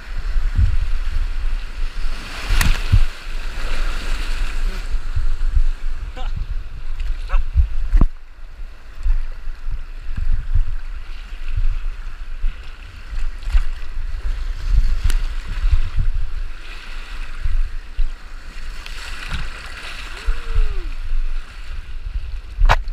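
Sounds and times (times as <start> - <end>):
whitewater rushing against canoe: 0.0 - 22.9.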